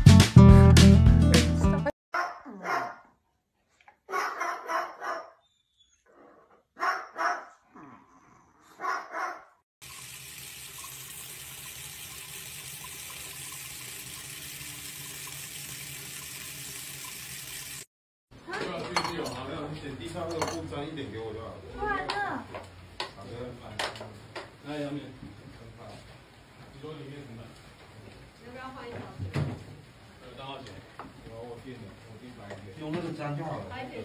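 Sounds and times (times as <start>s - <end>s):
dog barking: 2.2s - 3.2s, 4.1s - 5.4s, 6.8s - 7.9s, 8.7s - 9.6s.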